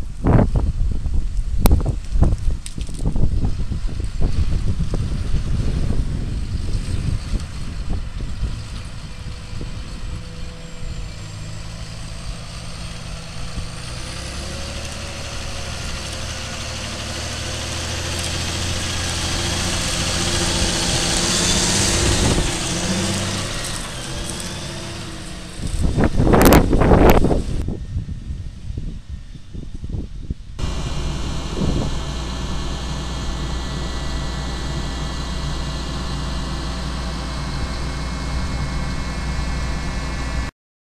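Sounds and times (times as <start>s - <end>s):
tractor diesel engine under load: 0.0s - 27.7s, 30.6s - 40.5s
wind buffeting microphone: 0.0s - 40.5s
loud rush of noise: 30.6s - 40.5s.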